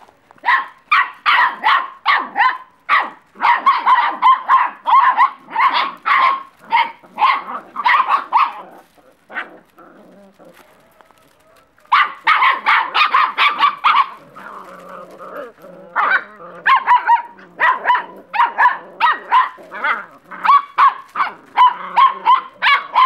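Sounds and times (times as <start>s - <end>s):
puppies yapping: 0.4s - 23.0s.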